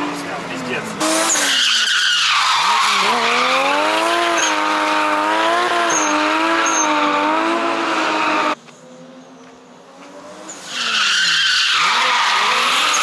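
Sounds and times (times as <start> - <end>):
high-revving car engine: 2.6 - 8.6
tyres squealing: 10.5 - 13.0.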